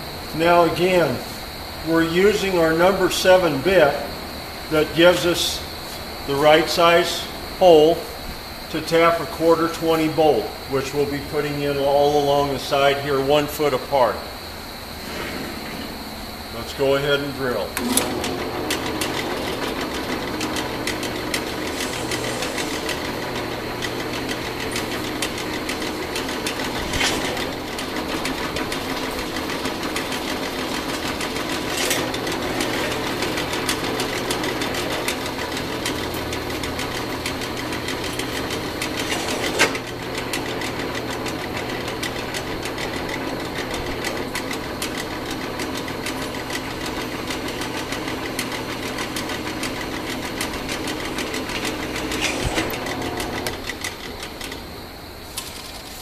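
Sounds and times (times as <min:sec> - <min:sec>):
drill press drilling into steel: 0:16.8 - 0:54.8.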